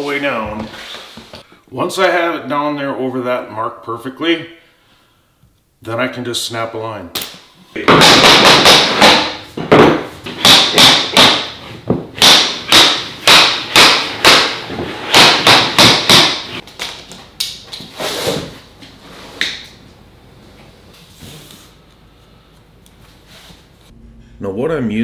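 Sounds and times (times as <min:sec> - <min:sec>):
tapping block knocking vinyl planks: 0:07.8 - 0:17.6.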